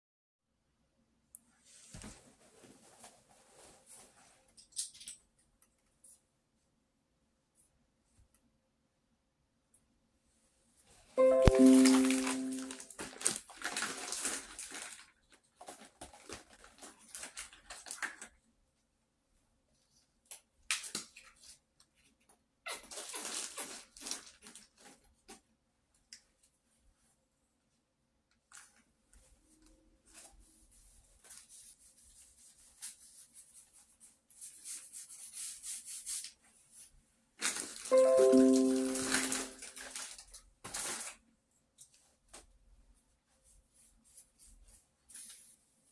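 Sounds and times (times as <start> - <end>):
rustling and handling noise: 1.4 - 6.7, 10.2 - 18.8, 19.7 - 45.9
ringing musical tone: 11.2 - 12.9, 37.9 - 39.6
paintbrush strokes on paper: 30.0 - 37.0.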